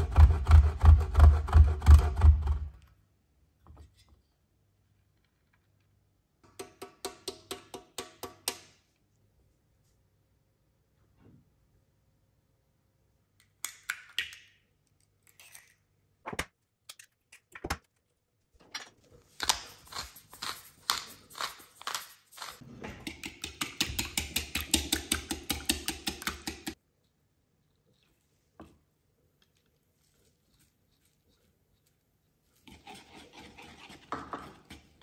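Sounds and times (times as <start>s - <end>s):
pepper mill grinding: 19.3s - 22.6s.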